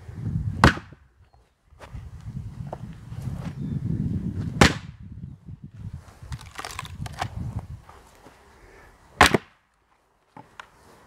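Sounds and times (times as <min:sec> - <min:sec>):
axe chopping firewood: 0:00.6 - 0:01.0, 0:04.6 - 0:05.0, 0:09.2 - 0:09.6.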